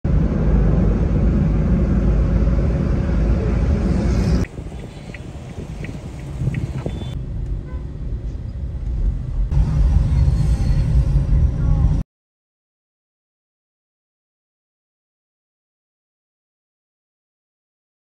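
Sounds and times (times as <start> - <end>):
road and engine rumble inside car: 0.1 - 12.0
traffic hum: 0.1 - 12.0.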